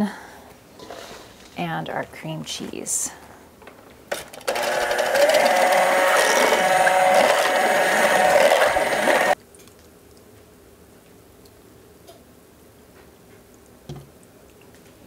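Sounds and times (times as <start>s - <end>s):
electric hand mixer beating: 4.2s - 9.4s.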